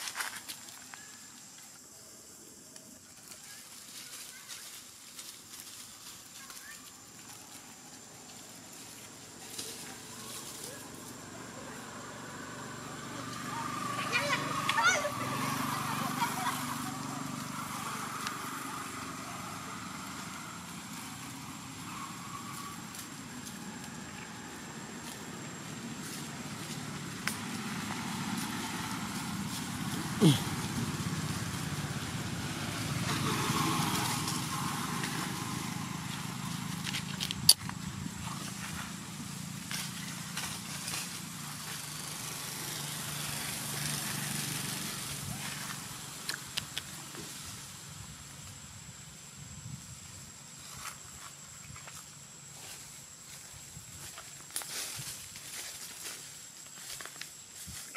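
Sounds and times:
motor engine running: 7.2 - 48.1.

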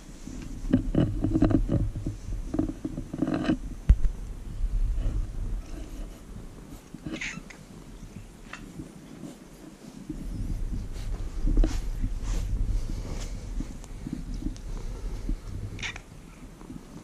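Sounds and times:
soft rustles: 0.0 - 17.0
low rumble: 0.5 - 8.9, 10.0 - 16.8
cat meowing: 7.1 - 7.6.

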